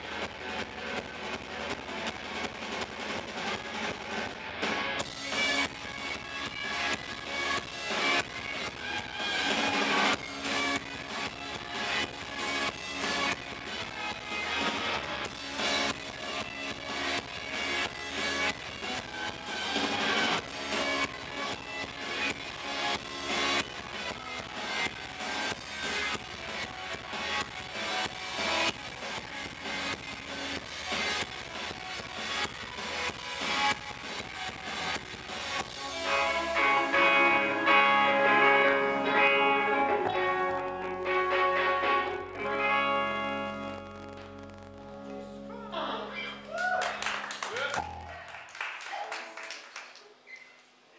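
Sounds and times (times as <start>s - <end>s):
live rock band playing: 0.0s - 48.0s.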